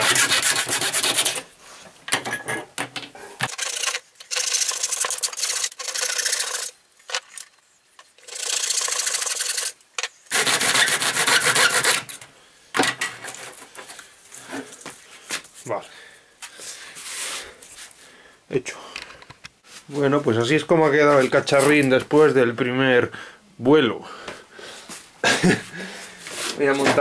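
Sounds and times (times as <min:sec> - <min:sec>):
hand file rasping: 0:00.0 - 0:01.5, 0:10.3 - 0:12.2.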